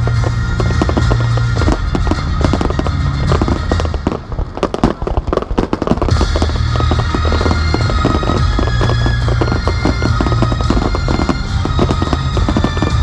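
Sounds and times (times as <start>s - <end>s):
fireworks bursting and crackling: 0.0s - 13.0s
music with steady bass line: 0.0s - 13.0s.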